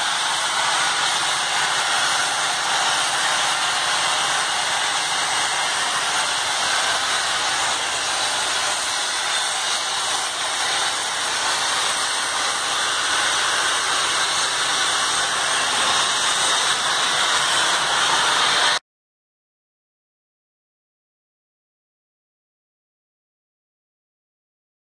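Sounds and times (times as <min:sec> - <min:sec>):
steam hissing: 0:00.0 - 0:18.8.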